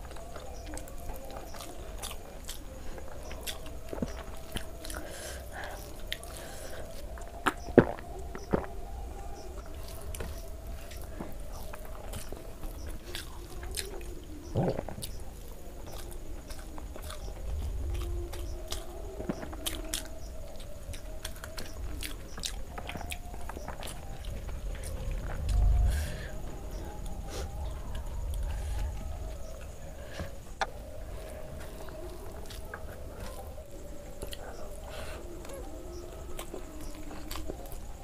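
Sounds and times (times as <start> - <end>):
faint steady hum: 0.0 - 38.0
chewing and wet mouth smacks: 31.9 - 33.4.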